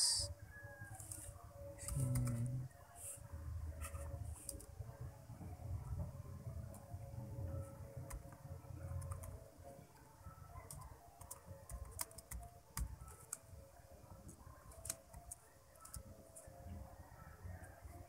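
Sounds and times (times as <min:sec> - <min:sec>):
keyboard typing clicks: 0:01.8 - 0:02.5, 0:08.0 - 0:09.4, 0:10.6 - 0:13.5, 0:14.3 - 0:16.5.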